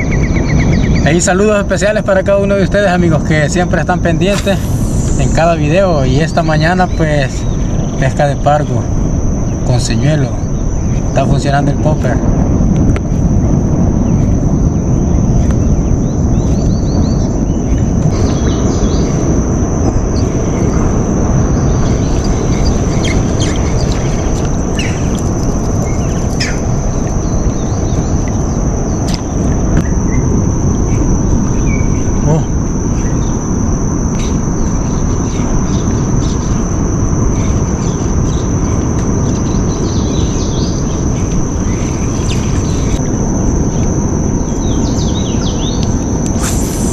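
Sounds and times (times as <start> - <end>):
high insect drone: 0.0 - 46.9
steady low rumble: 0.0 - 46.9.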